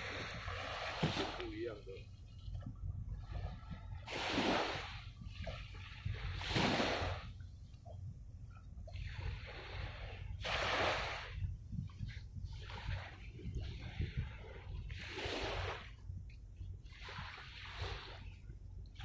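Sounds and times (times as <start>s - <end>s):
small waves washing onto shore: 0.0s - 7.8s, 8.8s - 16.0s, 16.8s - 19.0s
wind rumble on microphone: 0.0s - 19.0s.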